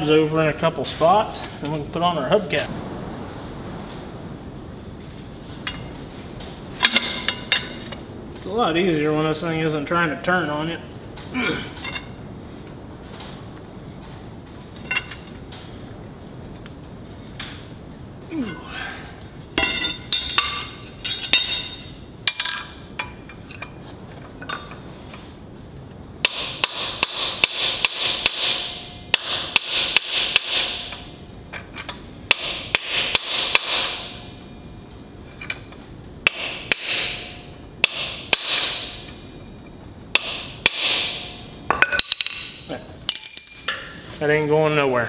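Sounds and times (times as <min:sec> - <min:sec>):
hammer striking steel punch: 0:26.2 - 0:31.0, 0:32.3 - 0:34.3, 0:36.3 - 0:39.2, 0:40.1 - 0:42.7.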